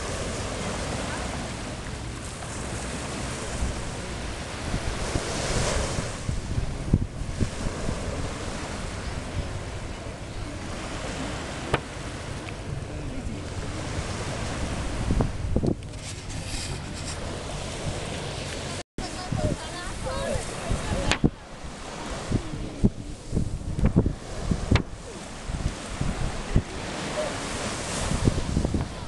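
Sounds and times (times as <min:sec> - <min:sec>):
small waves washing on beach: 0:00.0 - 0:29.0
wind buffeting microphone: 0:00.0 - 0:29.0.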